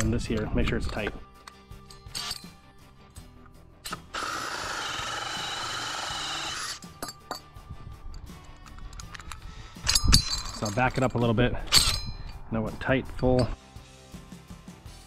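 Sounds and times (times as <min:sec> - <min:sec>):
drill with hole saw running: 0:03.9 - 0:06.8.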